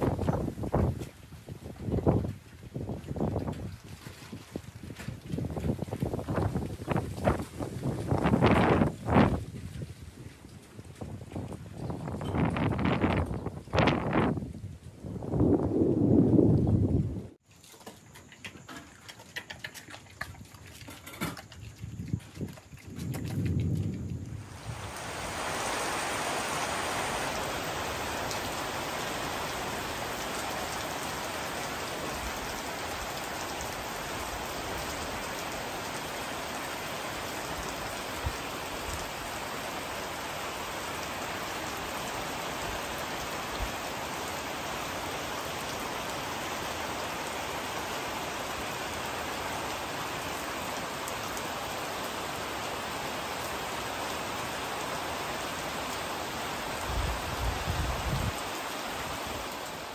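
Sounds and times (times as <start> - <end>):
heavy rain falling: 0.0 - 1.0, 5.4 - 9.5, 23.6 - 59.9.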